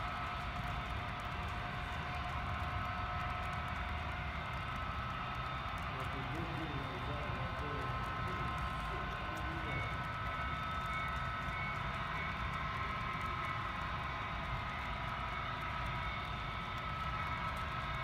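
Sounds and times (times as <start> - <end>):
model train rolling along track: 0.0 - 18.0.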